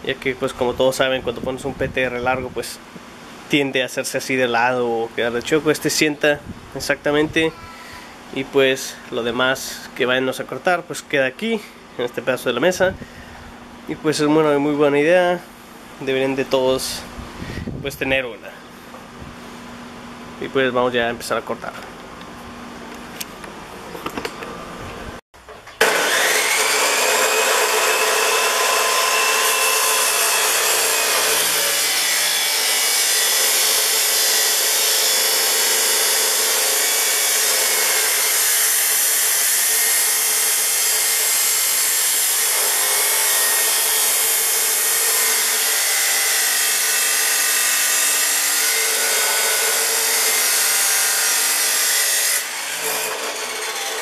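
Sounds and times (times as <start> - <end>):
chop saw cutting steel tubing: 25.8 - 54.0.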